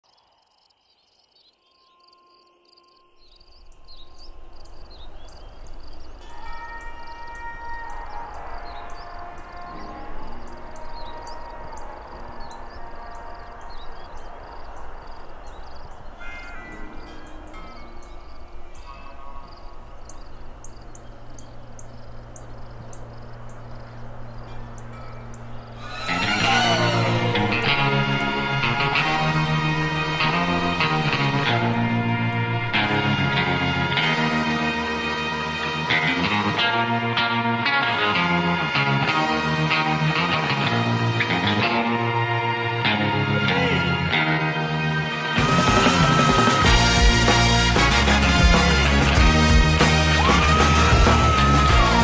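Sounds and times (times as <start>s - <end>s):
bird chirps: 0.0s - 27.6s
crickets chirping: 0.0s - 32.8s.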